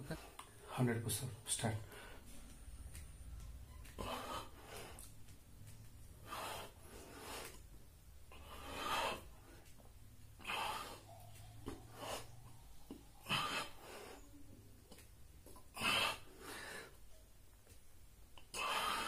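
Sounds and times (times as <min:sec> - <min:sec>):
man breathing hard: 0:04.0 - 0:05.1, 0:06.1 - 0:07.7, 0:08.3 - 0:14.4, 0:15.7 - 0:17.0, 0:18.5 - 0:19.0.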